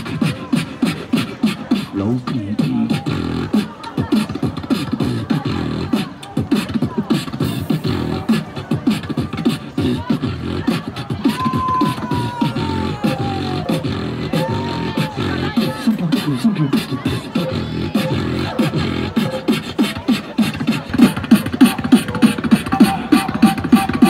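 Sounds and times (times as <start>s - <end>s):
person beatboxing: 0.0s - 24.0s.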